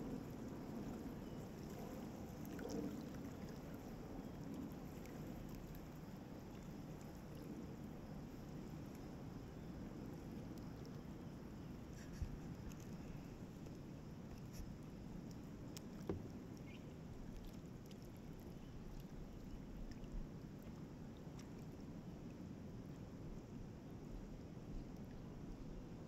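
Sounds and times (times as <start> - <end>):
faint water noise: 0.0 - 26.0
kayak paddle dipping in water: 11.9 - 21.6.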